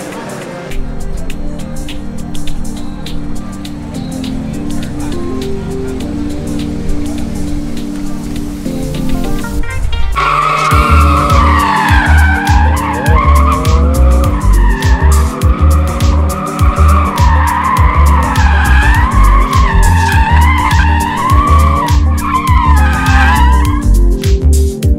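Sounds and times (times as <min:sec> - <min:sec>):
background music with steady beat: 0:00.0 - 0:24.9
tyres squealing: 0:10.1 - 0:24.0.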